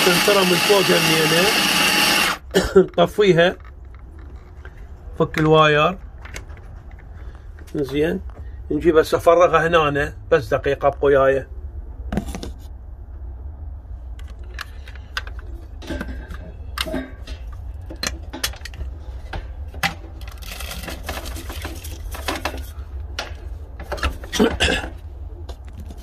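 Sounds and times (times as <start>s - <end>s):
knocking and scraping of container: 15.8s - 24.7s.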